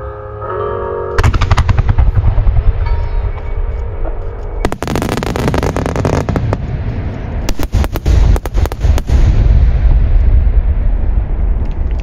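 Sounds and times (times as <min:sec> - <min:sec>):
fireworks booming: 0:01.2 - 0:03.5, 0:04.6 - 0:12.0
fireworks crackling: 0:04.6 - 0:10.4.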